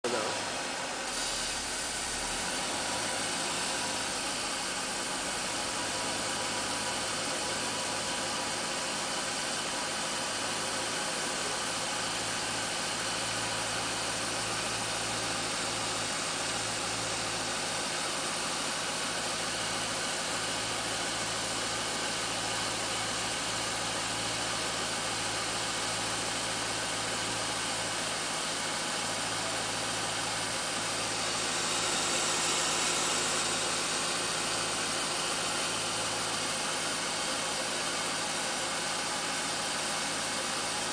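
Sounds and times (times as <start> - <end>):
car engine idling: 0.0 - 40.9.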